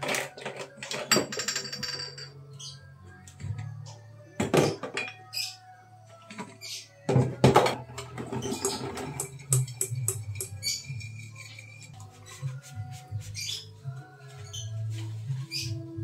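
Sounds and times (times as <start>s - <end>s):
glass bottles clinking: 0.2s - 2.4s, 4.4s - 5.5s.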